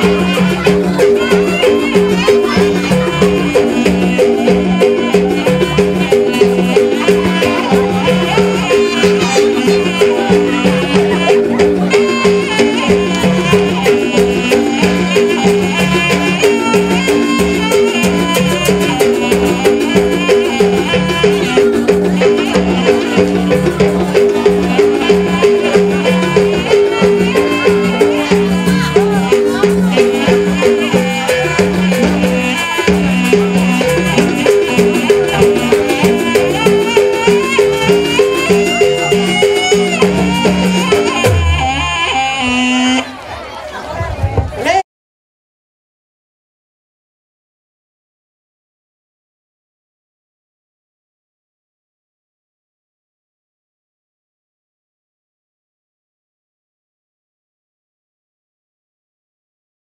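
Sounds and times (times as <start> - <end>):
drum strokes: 0.0 - 43.1
high pitch-bending melody: 0.0 - 43.1.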